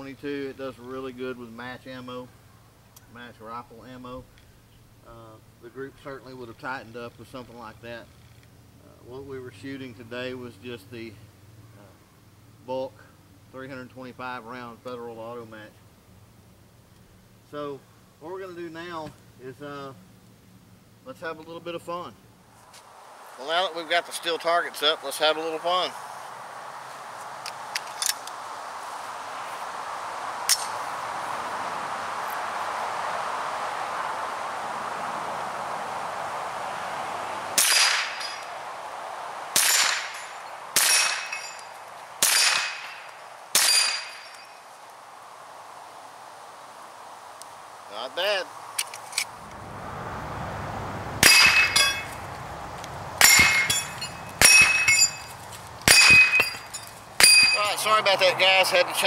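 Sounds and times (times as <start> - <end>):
steady outdoor hiss: 0.0 - 59.0
bullets clanging on steel plates: 39.6 - 44.5, 51.2 - 52.1, 53.2 - 57.7.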